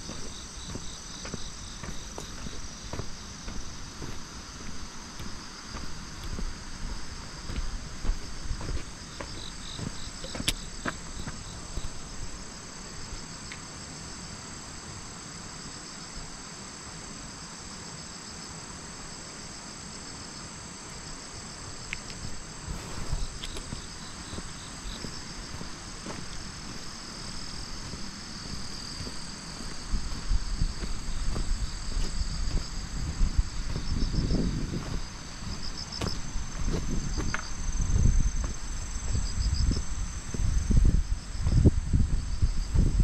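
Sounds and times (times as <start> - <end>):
low wind rumble: 0.0 - 13.3, 21.5 - 43.0
crickets and insects trilling: 0.0 - 43.0.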